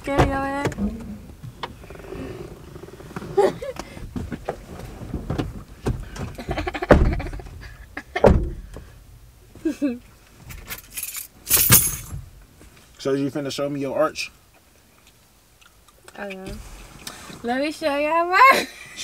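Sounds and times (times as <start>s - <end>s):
knocks and thumps against seats: 0.0s - 1.8s, 3.0s - 9.0s.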